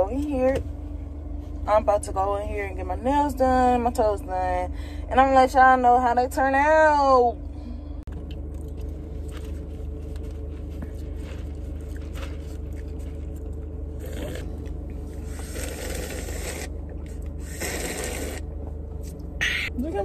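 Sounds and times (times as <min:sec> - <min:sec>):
slurping through a straw: 0:14.0 - 0:16.8, 0:17.4 - 0:18.5.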